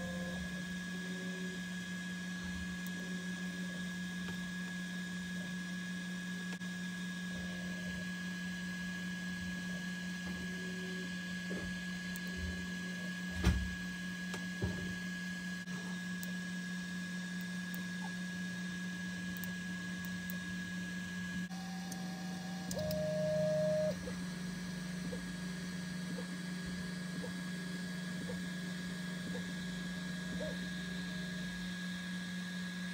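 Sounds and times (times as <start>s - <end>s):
printer fan hum: 0.0s - 14.8s, 17.2s - 32.9s
stepper motor whining: 21.3s - 32.9s.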